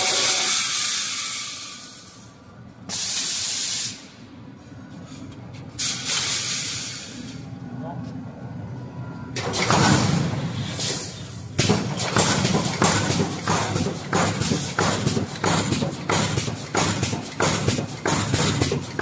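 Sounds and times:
pneumatic hiss: 0.0 - 4.3, 5.1 - 7.5, 9.4 - 18.8
welding machine clacking: 9.4 - 19.0.

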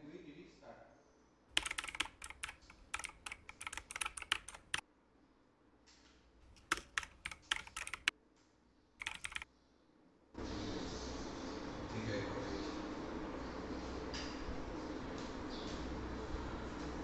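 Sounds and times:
typing on computer keyboard: 1.5 - 4.8, 6.4 - 8.1, 9.0 - 9.5.

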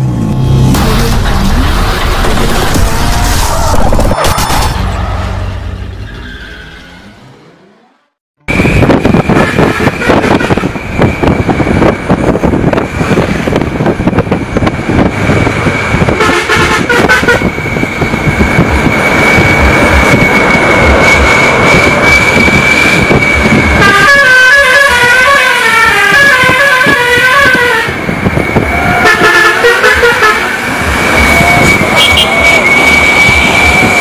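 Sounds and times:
bus engine and road rumble: 0.0 - 34.0
musical bus horn: 8.8 - 10.8, 16.1 - 17.5, 23.8 - 28.1, 28.7 - 30.8, 31.5 - 32.7.

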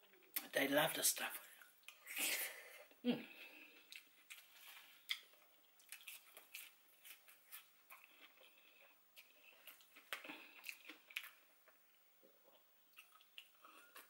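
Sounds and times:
chewing chips: 3.8 - 11.8, 12.5 - 14.0.

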